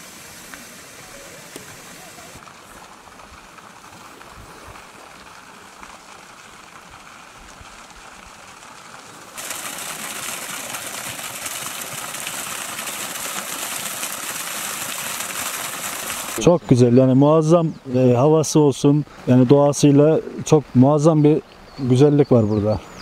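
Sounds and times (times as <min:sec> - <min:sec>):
fountain jet splashing into water: 0:00.0 - 0:16.5.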